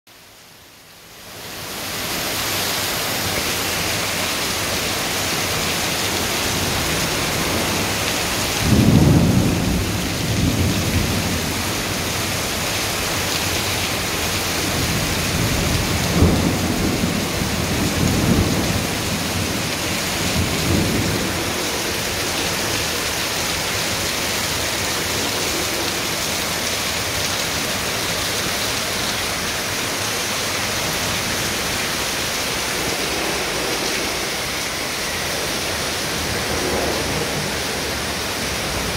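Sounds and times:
heavy rain on roof tiles: 0.1 - 38.9
low rumbles of thunder: 6.7 - 13.1, 14.7 - 24.0, 35.4 - 38.9.

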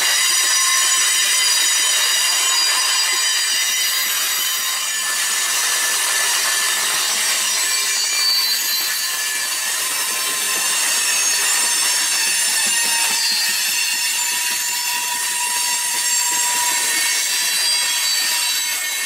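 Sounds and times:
steel wheels squealing on rail: 0.0 - 19.0.

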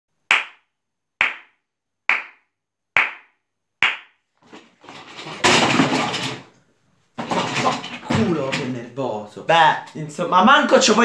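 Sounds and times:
hand claps: 0.3 - 4.2.

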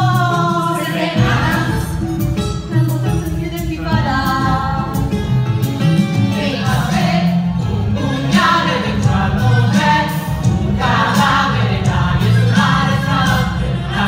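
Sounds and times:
group of singers: 0.0 - 2.4, 6.0 - 14.0
backing track with heavy beat: 0.0 - 14.0.

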